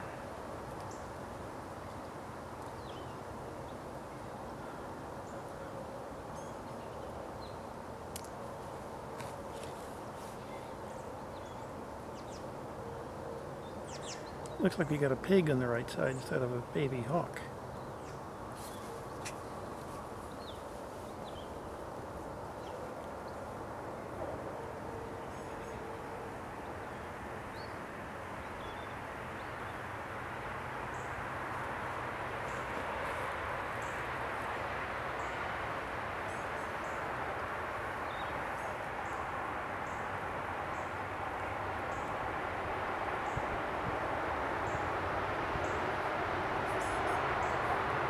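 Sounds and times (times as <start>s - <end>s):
outdoor background noise: 0.0s - 48.0s.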